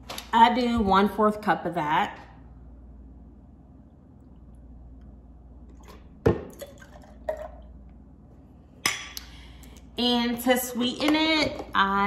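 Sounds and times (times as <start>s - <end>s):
liquid trickling: 5.7s - 7.7s
cup knocking on containers: 5.8s - 7.6s.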